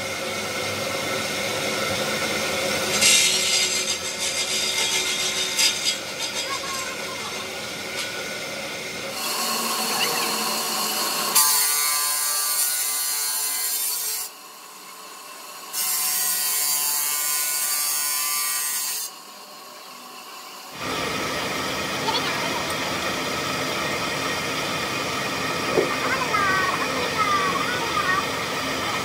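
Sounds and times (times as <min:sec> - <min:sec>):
saw blade grinding through stone: 0:02.6 - 0:08.4, 0:09.1 - 0:14.4, 0:15.7 - 0:19.6.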